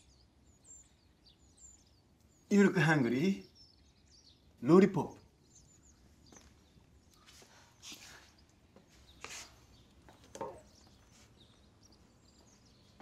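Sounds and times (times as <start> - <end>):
soft rustles: 6.2 - 13.0.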